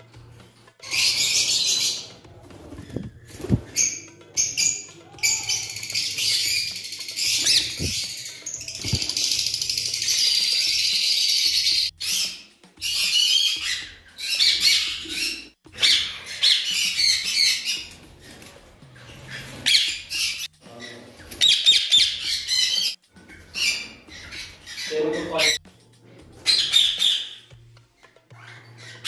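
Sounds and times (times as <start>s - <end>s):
parrots squawking: 0.8s - 25.6s, 26.3s - 27.5s, 28.2s - 29.0s.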